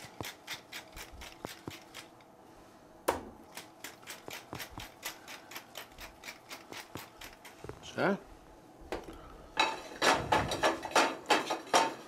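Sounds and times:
pepper mill grinding: 0.0s - 2.2s, 3.5s - 7.6s.

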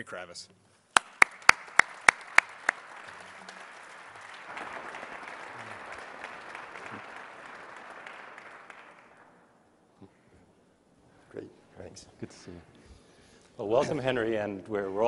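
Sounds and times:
loud single claps: 0.9s - 9.4s
audience applauding: 1.0s - 9.6s.

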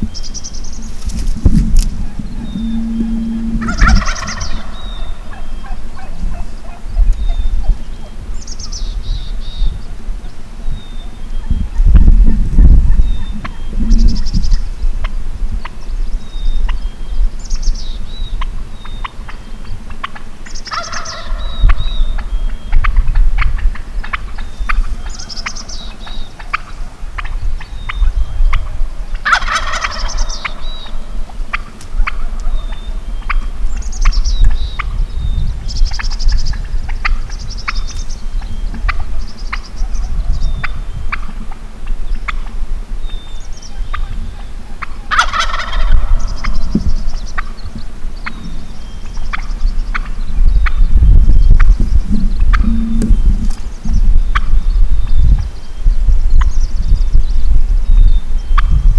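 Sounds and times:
songbird chirps: 0.0s - 12.0s, 12.9s - 58.9s
turkey gobbling: 0.6s - 8.1s, 18.4s - 34.9s, 35.9s - 38.0s, 38.7s - 40.1s, 41.1s - 42.6s, 43.4s - 47.6s, 48.2s - 50.8s, 51.6s - 53.7s, 54.3s - 54.6s.

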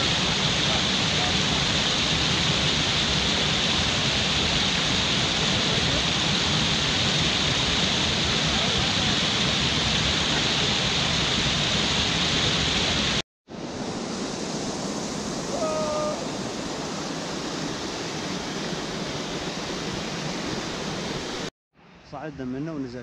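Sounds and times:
stream rushing over rocks: 0.0s - 21.5s.

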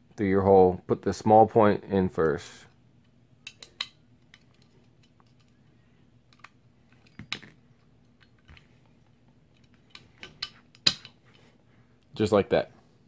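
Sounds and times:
small metal parts clicking: 3.4s - 5.6s.

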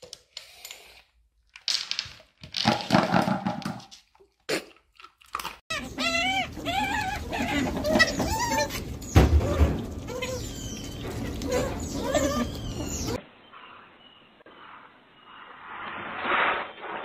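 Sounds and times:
plastic bowl clattering on wood: 2.5s - 3.9s
otter squeaky chirps: 5.7s - 13.2s.

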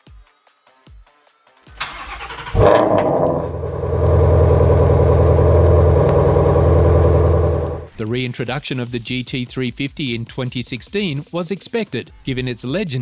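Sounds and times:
car engine revving and idling: 1.8s - 7.9s
starter motor cranking: 1.8s - 7.9s.

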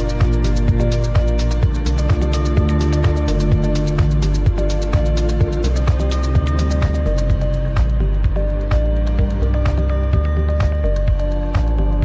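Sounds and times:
kick drum: 0.0s - 12.0s.

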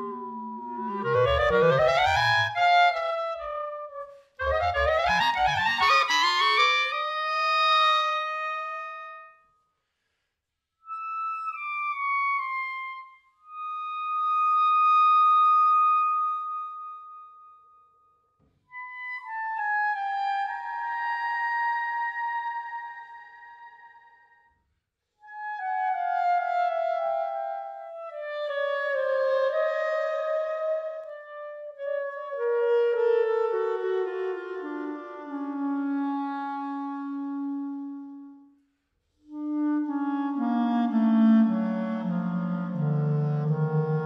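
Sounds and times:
solo clarinet playing: 0.0s - 9.4s, 25.2s - 38.5s, 39.2s - 44.0s.

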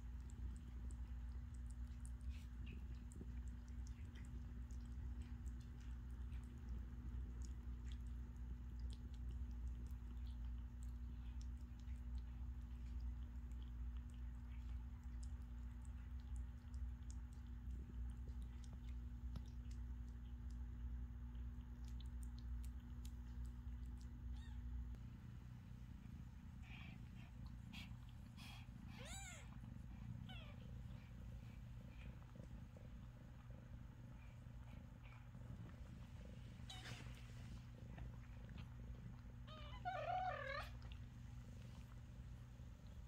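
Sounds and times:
cat purring: 0.0s - 43.0s
kitten mewing: 29.0s - 29.6s.

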